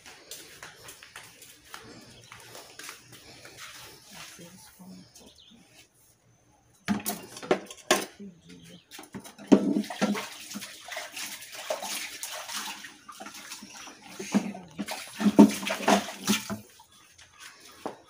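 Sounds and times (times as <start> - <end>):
pots knocking: 6.9 - 8.2, 9.0 - 10.3
water pouring and splashing: 8.9 - 17.9.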